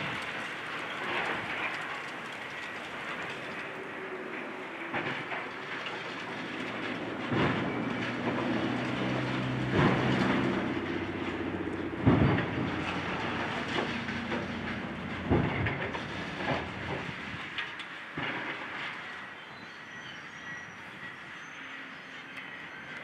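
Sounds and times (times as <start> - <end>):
diesel engine running: 0.0 - 17.6
debris crashing down: 0.0 - 19.4.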